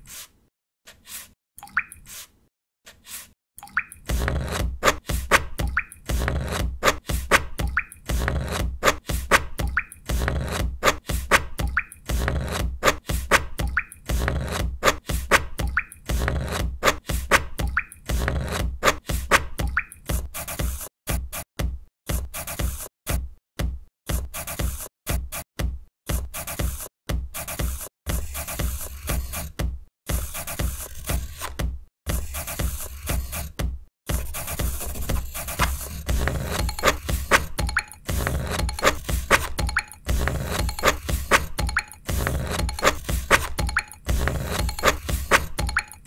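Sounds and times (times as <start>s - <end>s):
electronic music with beat and bass: 34.1s - 46.0s.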